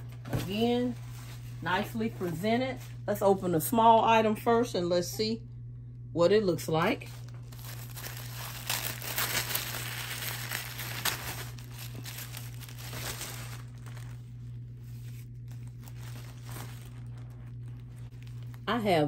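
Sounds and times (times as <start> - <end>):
tissue paper crinkling: 7.0 - 18.7.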